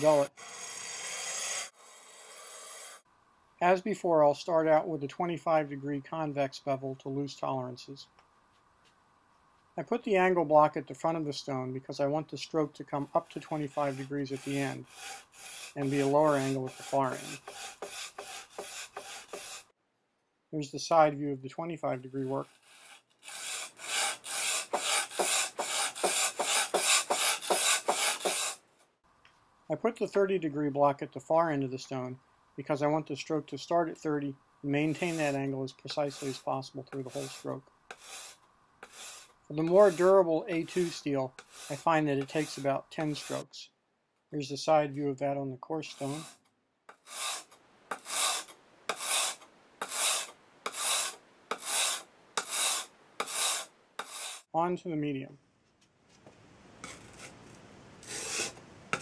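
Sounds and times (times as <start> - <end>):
blade scraping on sharpening stone: 37.1 - 43.4, 46.0 - 54.4, 58.0 - 59.0.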